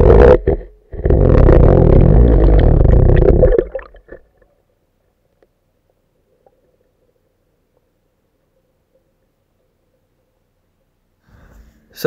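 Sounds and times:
muffled underwater gurgling: 0.0s - 4.3s.

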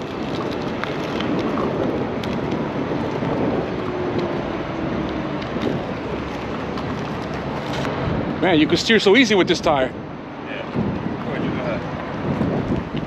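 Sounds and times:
tyre rolling over rough asphalt: 0.0s - 9.1s
wind buffeting microphone: 0.0s - 13.0s.

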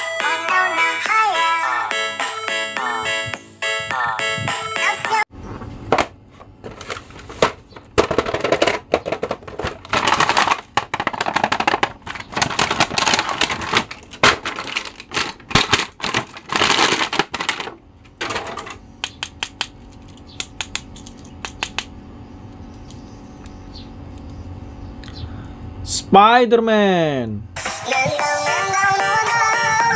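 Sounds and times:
cardboard and plastic crinkling: 6.5s - 18.4s.

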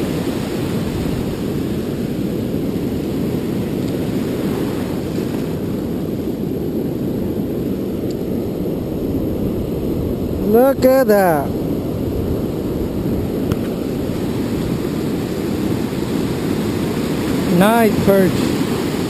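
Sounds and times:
ocean surf breaking: 0.0s - 19.0s
wind buffeting microphone: 0.0s - 19.0s.

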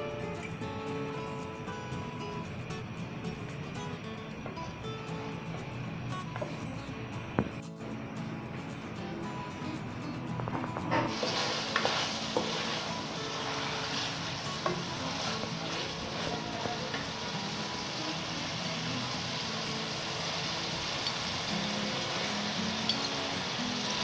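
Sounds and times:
meat sizzling in oil: 11.0s - 24.0s.

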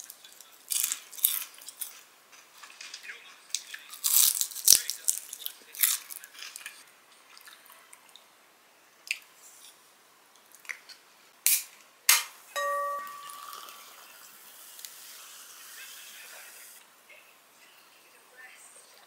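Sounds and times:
soda can opening pop and hiss: 11.4s - 12.4s, 14.7s - 15.0s
carbonation fizzing: 13.4s - 16.8s.

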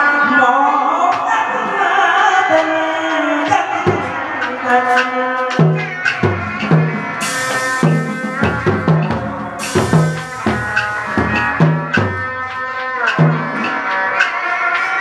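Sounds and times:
drum strokes: 3.4s - 15.0s
cymbal crashes: 5.5s - 13.8s
sustained melody: 7.0s - 12.8s.

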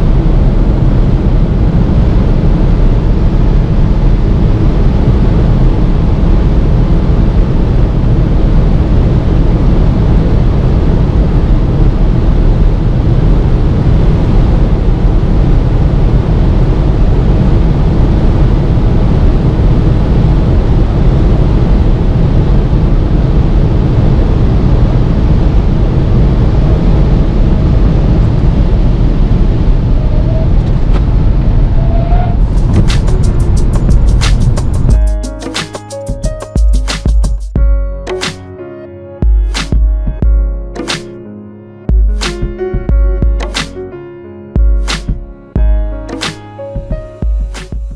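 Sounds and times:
wind tyre and engine noise: 0.0s - 35.0s.

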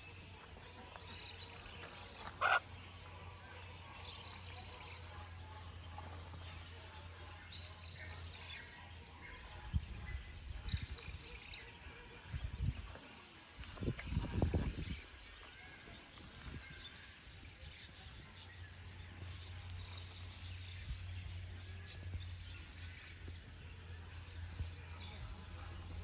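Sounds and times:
birds calling: 0.0s - 6.7s
harsh bird squawk: 1.6s - 2.7s.

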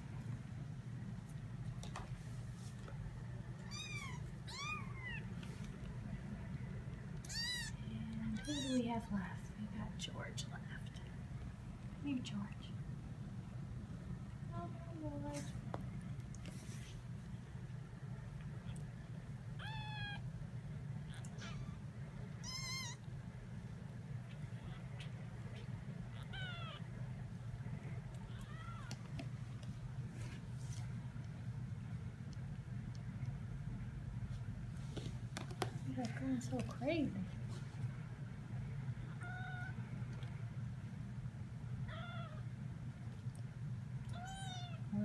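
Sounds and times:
low steady hum: 0.0s - 45.0s
kitten mewing: 3.6s - 5.3s, 7.2s - 8.8s, 19.6s - 20.2s, 21.0s - 21.8s, 22.4s - 23.0s, 24.3s - 26.9s, 39.1s - 39.8s, 41.9s - 42.5s, 44.1s - 44.9s.

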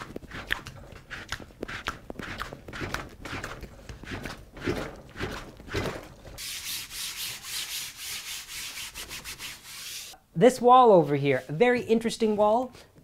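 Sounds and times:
damp sponge wiping canvas: 6.4s - 10.2s, 10.9s - 12.5s.

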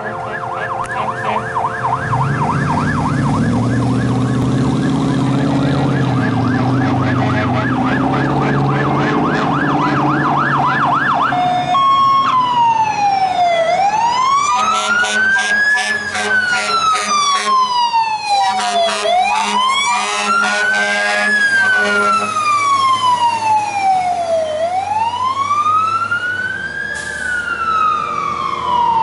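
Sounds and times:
vehicle engine running: 0.0s - 10.6s
electronic siren yelping and wailing: 0.0s - 29.0s.

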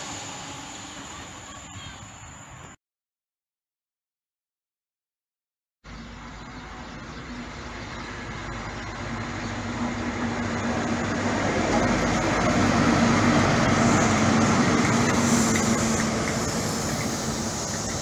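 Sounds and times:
diesel train engine drone: 0.0s - 2.8s, 5.9s - 18.0s
wheel and rail noise: 6.2s - 18.0s.

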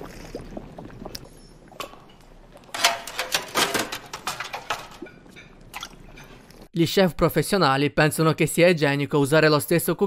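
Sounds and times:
utensils and crockery clattering: 1.8s - 6.5s.

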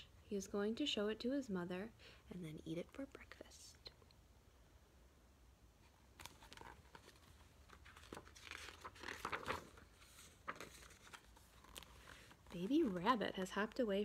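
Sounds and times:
paper pages rustling: 5.8s - 13.8s.

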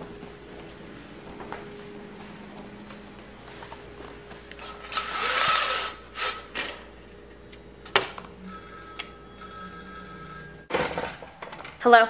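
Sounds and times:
telephone ringing: 8.3s - 11.8s.

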